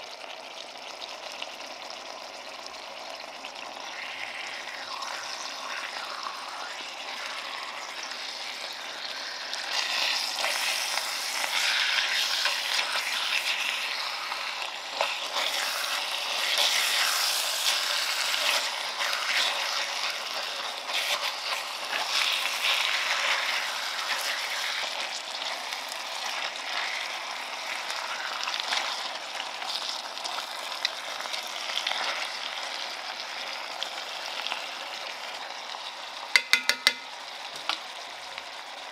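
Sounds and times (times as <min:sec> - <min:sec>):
meat sizzling in a pan: 0:00.0 - 0:38.9
tongs clicking against pan: 0:36.4 - 0:37.1.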